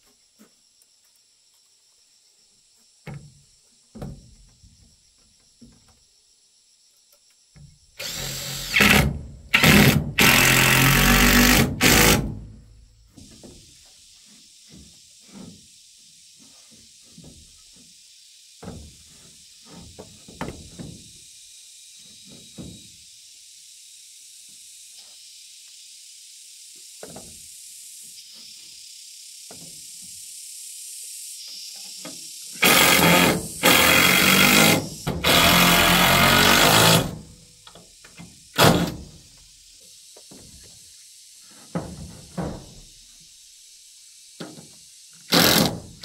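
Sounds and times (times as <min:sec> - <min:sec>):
cordless drill driving screws: 0:08.0 - 0:12.4, 0:32.6 - 0:37.2, 0:45.3 - 0:45.8.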